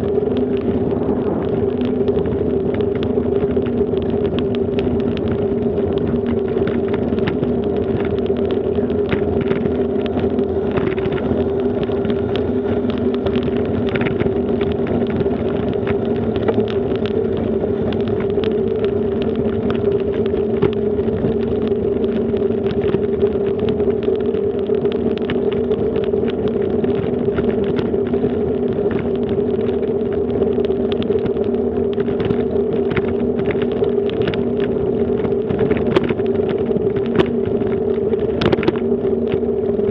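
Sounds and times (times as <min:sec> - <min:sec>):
bicycle rolling over bricks: 0:00.0 - 0:39.9.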